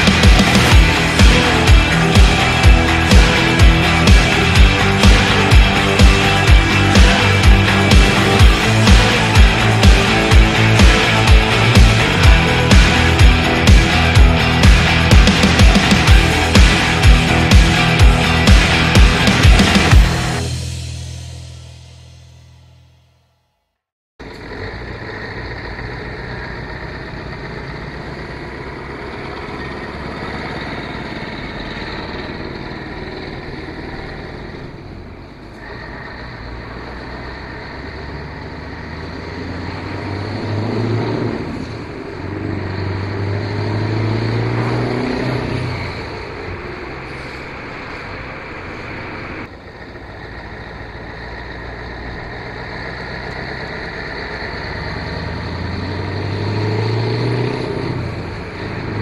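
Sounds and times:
road noise: 0.0 - 22.5, 24.2 - 59.0
vehicle engine running: 0.0 - 23.1, 24.2 - 59.0.

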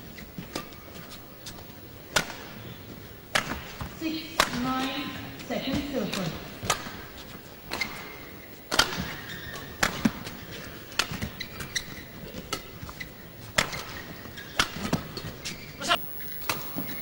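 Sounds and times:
shoes squeaking on court: 0.0 - 17.0
rackets striking shuttlecock: 3.3 - 4.7.

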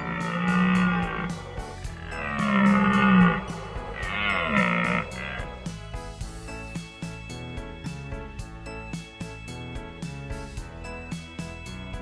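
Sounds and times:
low antelope calls: 0.0 - 5.7
light background music: 0.0 - 12.0.

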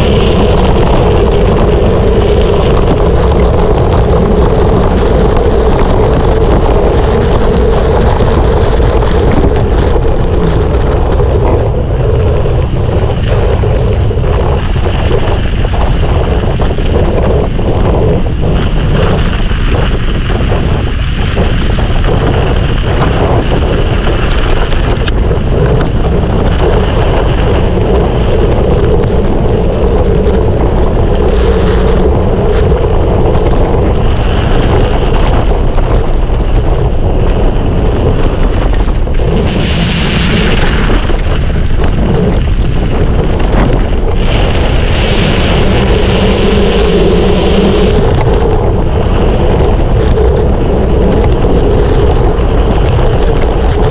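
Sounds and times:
mountain bike tyres rumbling on trail: 0.0 - 53.9
wind rushing on microphone: 0.0 - 53.9.

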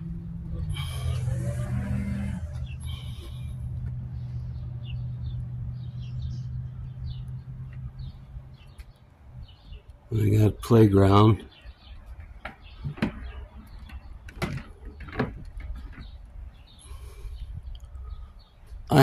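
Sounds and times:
small engine droning: 0.0 - 8.7.

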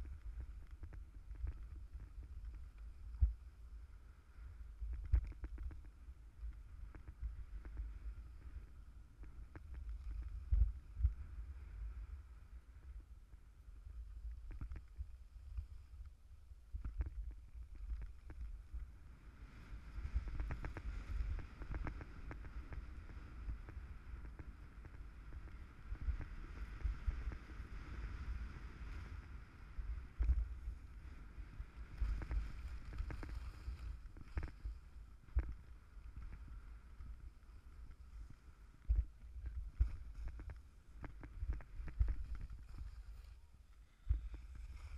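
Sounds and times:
wind on microphone: 0.0 - 13.2, 13.8 - 44.9
skis scraping over snow: 26.4 - 38.6, 39.4 - 43.5, 44.1 - 44.9.

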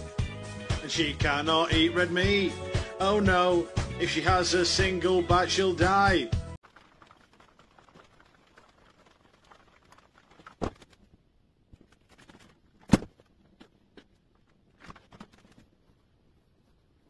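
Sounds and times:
faint rustling: 6.7 - 17.0.

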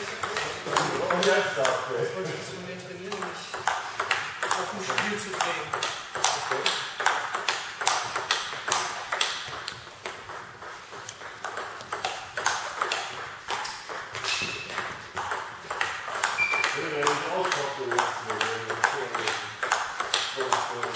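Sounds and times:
table tennis ball clicking: 0.0 - 1.8, 3.1 - 20.9
brief high squeak: 16.4 - 16.8.

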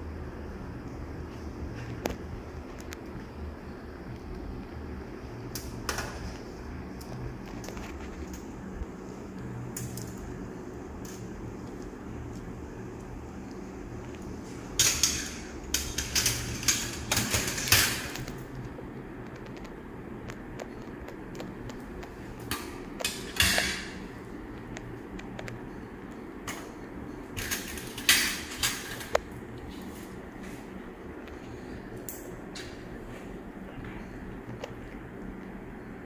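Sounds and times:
steady low hum: 0.0 - 36.0
metal instruments clicking and scraping: 14.8 - 18.7.

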